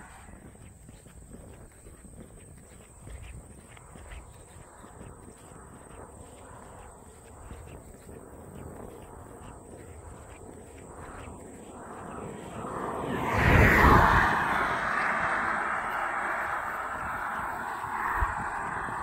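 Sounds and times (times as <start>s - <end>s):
car passing by: 11.2s - 19.0s.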